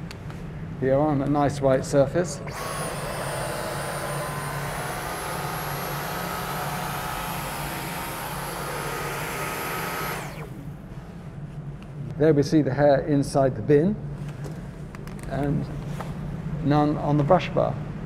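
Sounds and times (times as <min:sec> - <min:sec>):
vacuum cleaner motor whining: 0:02.4 - 0:10.8
vacuum motor spinning down: 0:02.4 - 0:10.8.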